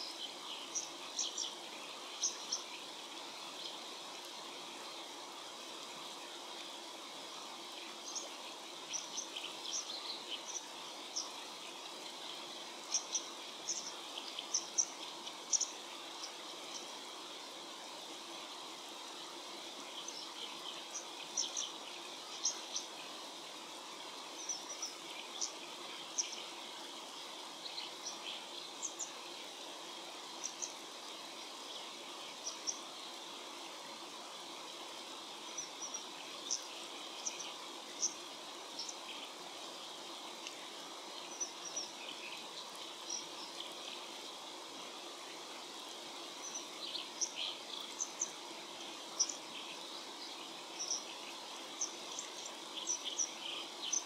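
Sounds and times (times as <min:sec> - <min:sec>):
stream rushing: 0:00.0 - 0:54.0.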